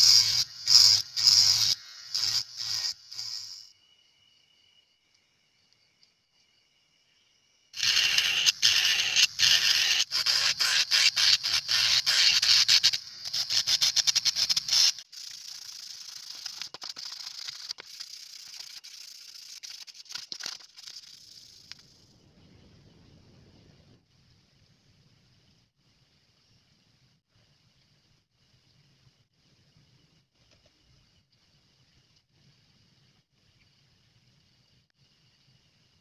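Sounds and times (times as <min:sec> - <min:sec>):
rotary grinder grinding plastic: 0:00.0 - 0:03.7, 0:07.8 - 0:21.1.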